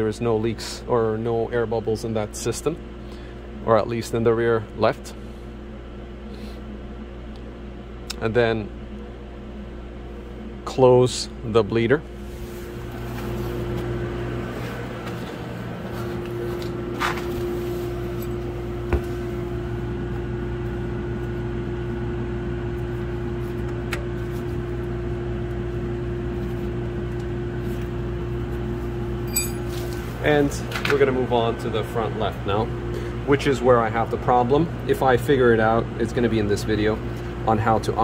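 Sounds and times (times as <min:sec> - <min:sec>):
steady mechanical hum: 0:00.0 - 0:38.0.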